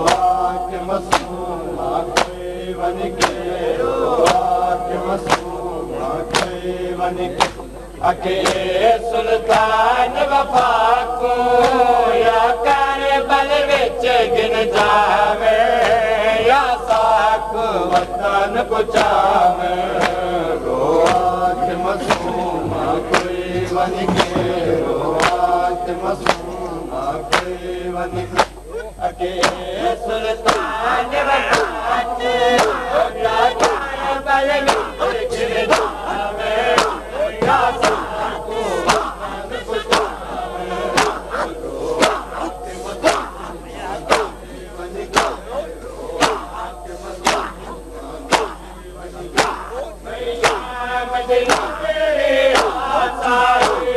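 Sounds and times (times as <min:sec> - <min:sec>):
hands slapping chests: 0:00.0 - 0:00.3, 0:01.1 - 0:01.4, 0:02.2 - 0:02.4, 0:03.2 - 0:03.4, 0:04.2 - 0:04.5, 0:05.2 - 0:05.6, 0:06.3 - 0:06.6, 0:07.4 - 0:07.7, 0:08.4 - 0:08.7, 0:18.9 - 0:19.2, 0:20.0 - 0:20.2, 0:21.0 - 0:21.3, 0:22.0 - 0:22.4, 0:23.1 - 0:23.4, 0:25.2 - 0:25.5, 0:26.2 - 0:26.5, 0:27.3 - 0:27.6, 0:28.2 - 0:28.6, 0:29.4 - 0:29.6, 0:30.4 - 0:30.8, 0:31.5 - 0:31.8, 0:32.5 - 0:33.0, 0:33.6 - 0:33.9, 0:34.6 - 0:35.0, 0:35.7 - 0:36.0, 0:36.7 - 0:38.2, 0:38.8 - 0:39.2, 0:39.8 - 0:44.4, 0:45.0 - 0:45.6, 0:46.2 - 0:46.6, 0:47.2 - 0:47.7, 0:48.3 - 0:48.6, 0:49.3 - 0:50.7, 0:51.5 - 0:51.8, 0:52.5 - 0:52.8, 0:53.6 - 0:53.9
man chanting a lament: 0:00.0 - 0:53.9.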